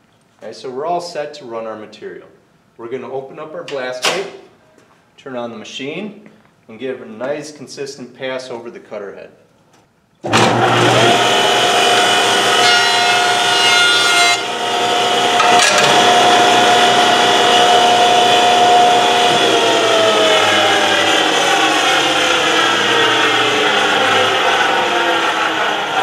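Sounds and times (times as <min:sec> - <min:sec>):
jointer motor whine: 0:10.3 - 0:26.0.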